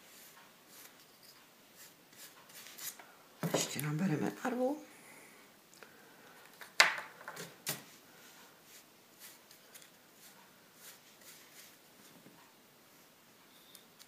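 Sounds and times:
brush dabbing paint on wood: 0.0 - 1.0, 1.8 - 3.0, 8.2 - 12.2.

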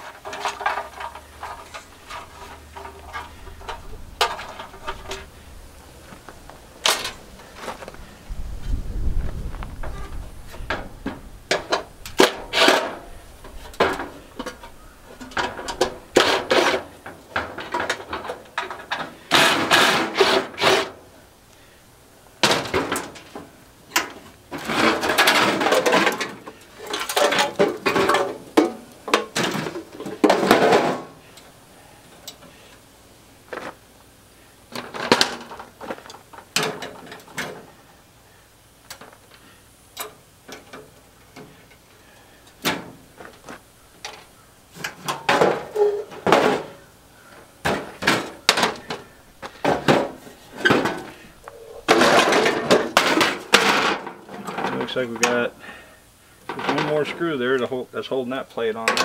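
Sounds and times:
clicks and knocks of parts: 0.0 - 5.3, 6.8 - 7.8, 10.6 - 21.6, 22.4 - 32.8, 34.7 - 37.7, 38.8 - 41.8, 42.4 - 55.4
metal parts clanking and scraping: 0.0 - 5.4, 6.8 - 8.0, 9.8 - 21.0, 22.4 - 31.2, 34.7 - 37.8, 42.5 - 46.8, 47.6 - 55.5, 56.4 - 57.3.

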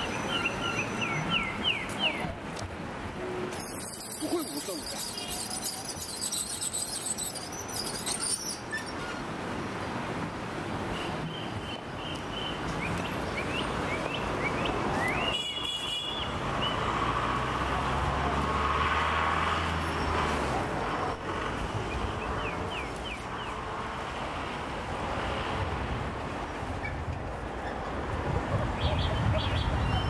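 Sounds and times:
passing cars and scooters: 0.0 - 30.0
high rising chirps: 3.5 - 8.7
large vehicle engine hum: 16.3 - 29.4.

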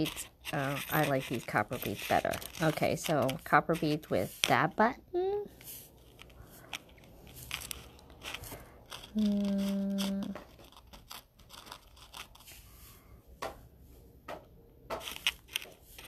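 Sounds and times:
person humming mmm: 9.1 - 10.4.

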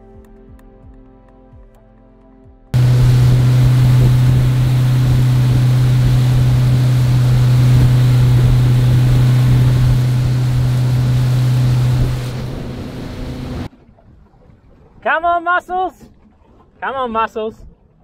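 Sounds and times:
outboard motor droning: 2.8 - 13.7
rushing water: 2.8 - 14.9
wind: 2.8 - 18.0.

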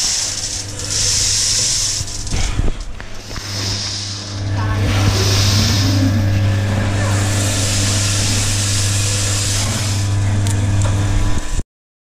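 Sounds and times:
coffee beans rustling: 0.0 - 2.6
motor and fan hum: 0.0 - 11.6.

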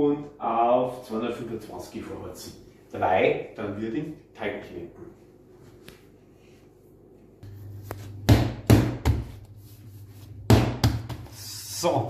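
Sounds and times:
dough thudding on counter: 10.5 - 11.3.

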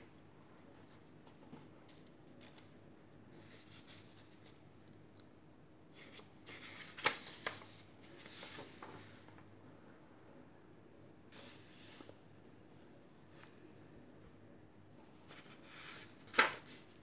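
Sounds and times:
book pages rustling: 6.0 - 9.5, 15.1 - 17.0
paper crinkling and crackling: 6.0 - 9.5, 15.2 - 17.0.

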